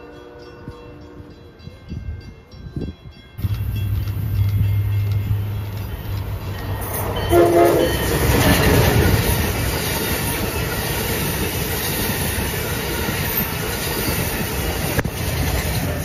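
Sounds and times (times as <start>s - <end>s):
high-speed train passing: 0.0s - 16.0s
wheel clatter on rails: 3.4s - 16.0s.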